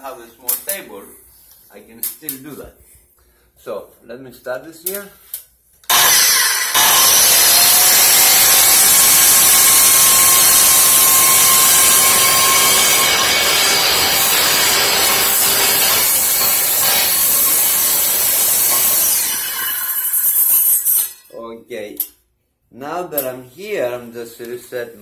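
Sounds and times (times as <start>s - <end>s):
circular saw cutting: 5.9s - 21.3s.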